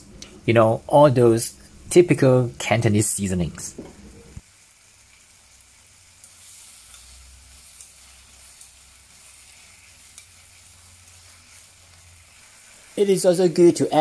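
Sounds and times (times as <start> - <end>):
vegetables sizzling in a frying pan: 3.8 - 14.0.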